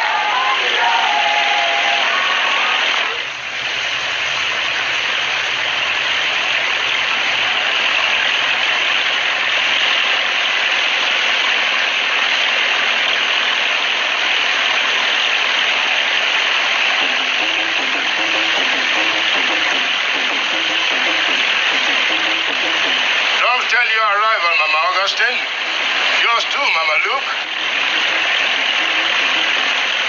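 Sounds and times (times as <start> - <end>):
hissing water rush: 0.0 - 30.0
faint low engine hum: 3.2 - 10.2.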